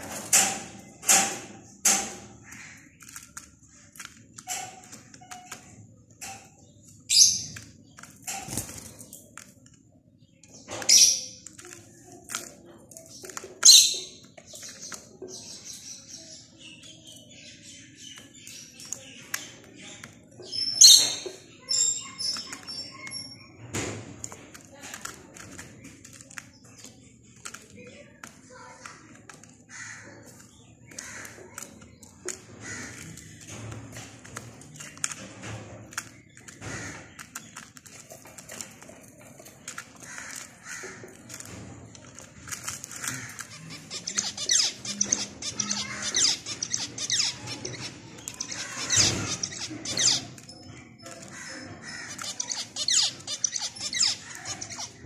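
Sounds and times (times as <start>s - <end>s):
finches chirping: 12.9s - 23.7s, 43.0s - 55.0s.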